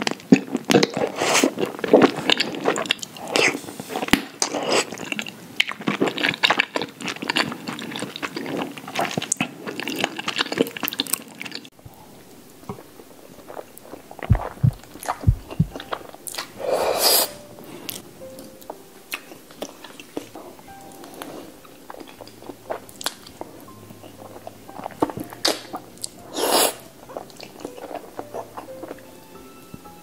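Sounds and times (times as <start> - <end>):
wet chewing: 0.0 - 11.8, 12.6 - 29.2
slurping noodles: 0.8 - 5.2, 13.4 - 18.0, 20.3 - 29.0
light background music: 14.3 - 30.0.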